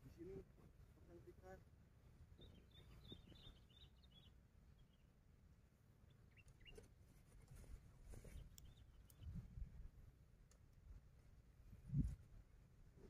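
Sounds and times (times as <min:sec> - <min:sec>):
faint bird chirps: 0:02.3 - 0:05.2, 0:06.0 - 0:07.0, 0:08.1 - 0:09.8.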